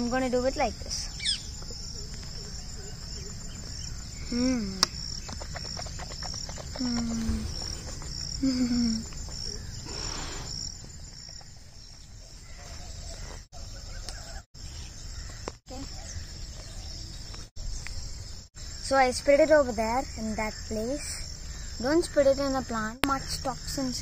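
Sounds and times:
insects chirping: 0.0s - 24.0s.

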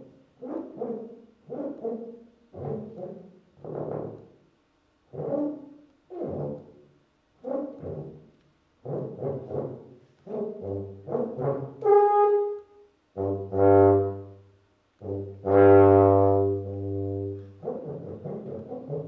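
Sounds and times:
solo tuba playing: 8.8s - 19.0s.

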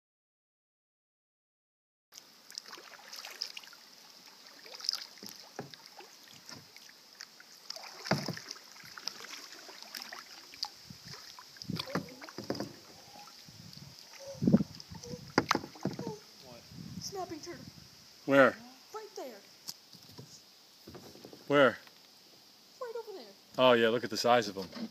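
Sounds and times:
paddles dipping into water: 2.2s - 16.2s.

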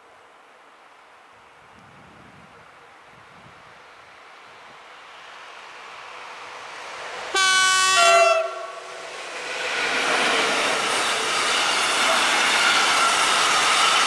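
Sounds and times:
train approaching: 3.6s - 14.0s
locomotive horn: 7.3s - 8.9s.

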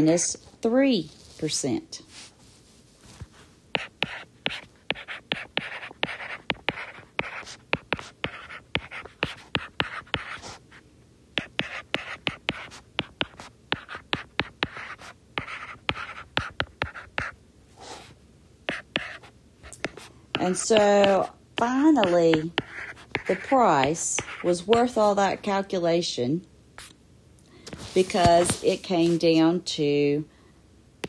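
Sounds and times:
stylus scratching on tablet screen: 3.7s - 10.6s, 11.4s - 18.1s, 18.7s - 25.6s, 27.9s - 29.4s.

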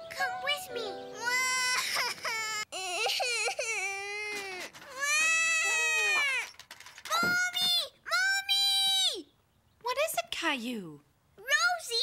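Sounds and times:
toddler girl crying: 1.2s - 6.5s.

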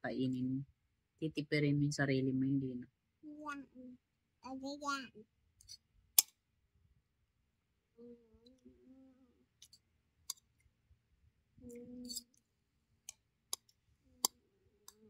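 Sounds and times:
fork clicking on plastic plate: 13.1s - 15.0s.

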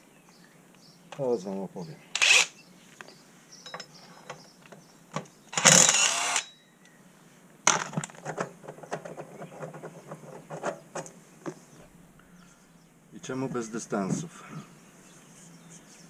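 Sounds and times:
impact wrench burst: 5.5s - 6.5s.

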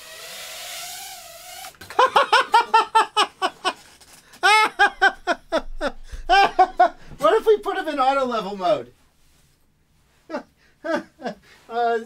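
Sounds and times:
man laughing hard: 1.9s - 3.8s, 4.4s - 7.5s, 10.3s - 11.4s.

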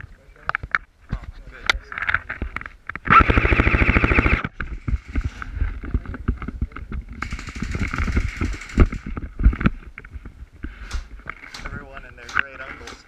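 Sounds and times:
airsoft rifle full-auto burst: 3.1s - 4.4s, 7.2s - 9.1s.

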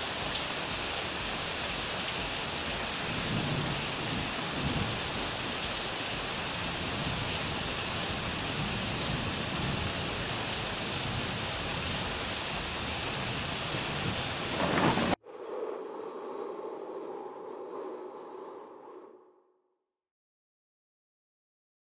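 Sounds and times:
heavy rain hissing: 0.0s - 15.2s
low thunder rumbling: 3.0s - 5.6s, 6.6s - 15.2s.

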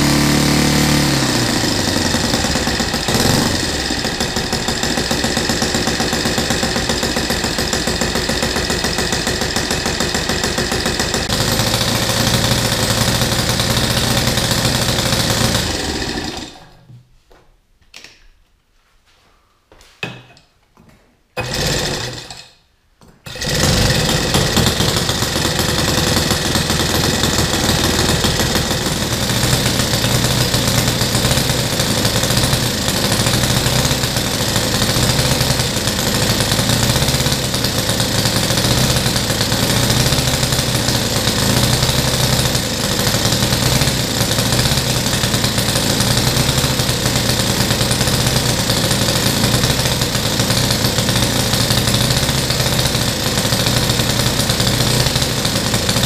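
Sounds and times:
model airplane engine running: 0.0s - 16.7s, 23.3s - 56.0s.

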